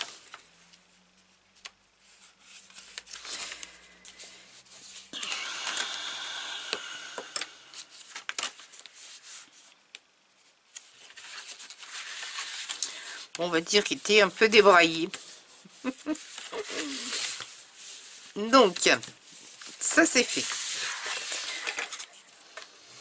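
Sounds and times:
paper rustling: 1.2s - 5.9s, 7.8s - 12.9s, 13.7s - 22.8s
scratchy rubbing of paper: 14.2s - 22.2s.

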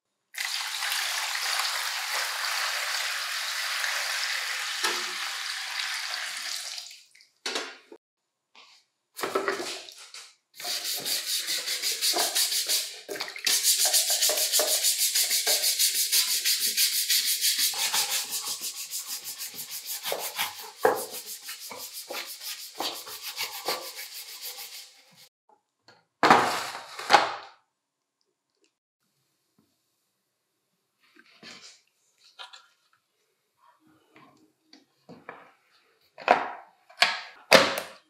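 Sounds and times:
rapid rubbing strokes: 13.5s - 25.3s.

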